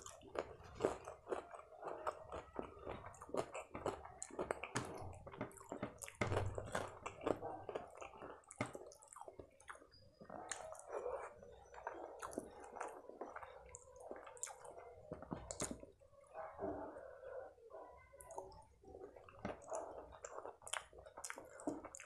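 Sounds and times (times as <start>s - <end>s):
fingers mashing rice squishing: 0.0s - 15.9s
chewing: 0.0s - 17.4s, 18.2s - 22.0s.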